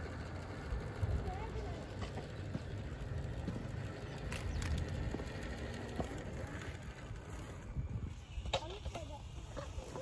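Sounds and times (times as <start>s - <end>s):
toy truck tyres ticking and scraping: 0.0s - 10.0s
wind rumbling on microphone: 3.6s - 10.0s.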